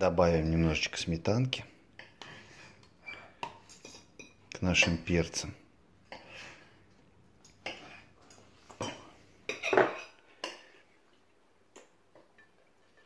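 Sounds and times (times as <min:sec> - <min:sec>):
spoon clinking on plates: 0:07.4 - 0:10.8, 0:11.8 - 0:13.0.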